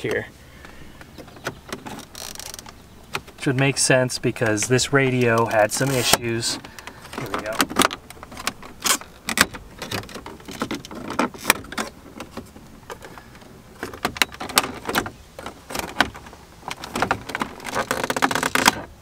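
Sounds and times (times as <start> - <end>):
plastic trim clicking and creaking: 0.0 - 19.0.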